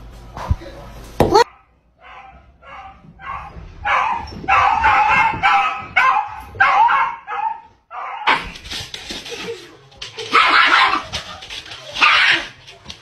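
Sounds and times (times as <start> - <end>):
dog barking and yipping: 1.3 - 8.6, 10.2 - 12.8.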